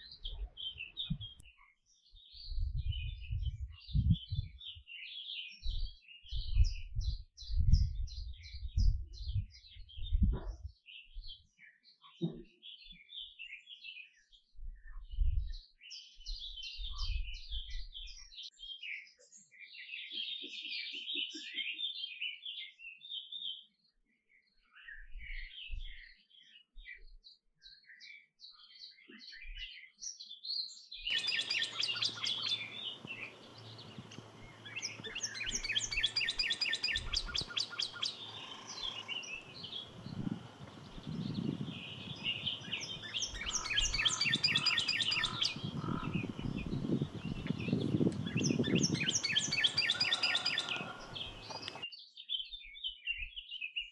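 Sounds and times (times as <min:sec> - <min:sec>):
background hiss: 0:31.1 - 0:43.3
canary singing: 0:31.1 - 0:51.8.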